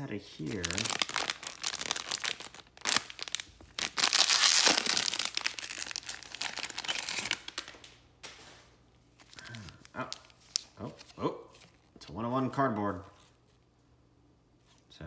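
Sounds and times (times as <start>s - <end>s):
plastic wrapper crinkling and tearing: 0.4s - 8.0s, 9.2s - 11.2s.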